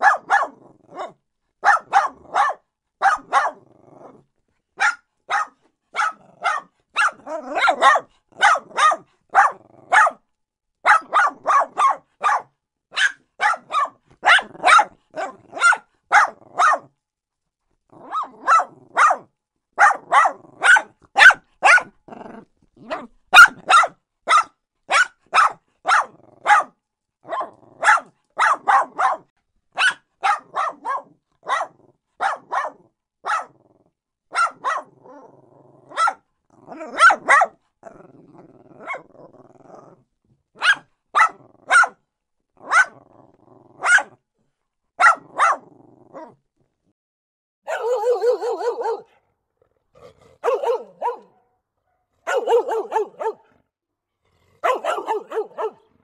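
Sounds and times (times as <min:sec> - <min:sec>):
small dogs barking: 0:00.0 - 0:04.2, 0:04.8 - 0:10.2, 0:10.8 - 0:16.9, 0:18.0 - 0:33.7, 0:34.3 - 0:39.1, 0:40.6 - 0:42.0, 0:42.6 - 0:43.1, 0:43.8 - 0:44.2, 0:45.0 - 0:46.4, 0:47.6 - 0:49.2, 0:50.0 - 0:53.6, 0:54.4 - 0:56.0
low dog growling: 0:03.6 - 0:04.3, 0:22.0 - 0:23.1, 0:33.5 - 0:34.0, 0:34.9 - 0:37.0, 0:37.8 - 0:40.1, 0:43.0 - 0:43.8, 0:45.6 - 0:46.4, 0:48.4 - 0:51.4, 0:52.2 - 0:56.0.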